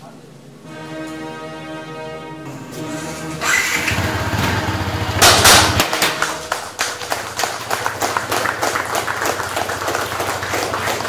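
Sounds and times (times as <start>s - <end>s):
motorcycle engine idling: 3.7s - 5.8s
confetti popper bursting: 4.6s - 7.2s
people clapping: 5.1s - 11.0s.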